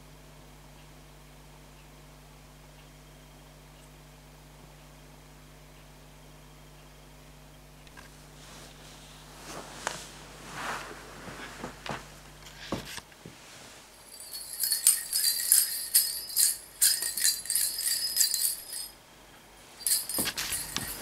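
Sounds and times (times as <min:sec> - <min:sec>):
bell in toy ball jingling: 0:13.9 - 0:19.0, 0:19.8 - 0:21.0.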